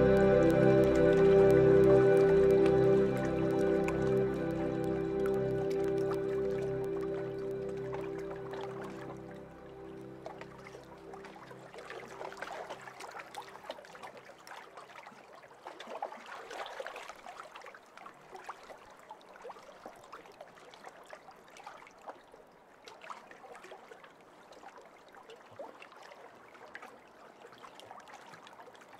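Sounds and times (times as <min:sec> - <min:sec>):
water trickling and dripping: 0:00.0 - 0:22.3.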